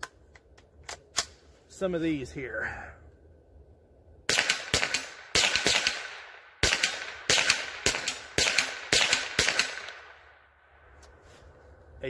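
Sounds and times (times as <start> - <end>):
rifle shots: 4.3 - 10.6.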